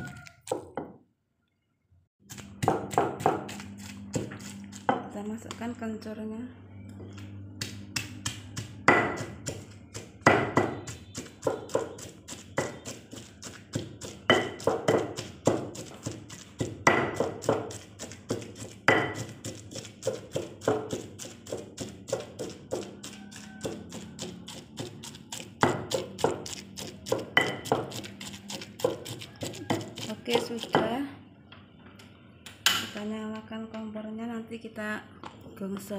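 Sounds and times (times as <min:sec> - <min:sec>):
stone pestle pounding in mortar: 0:02.3 - 0:05.5, 0:07.6 - 0:31.0.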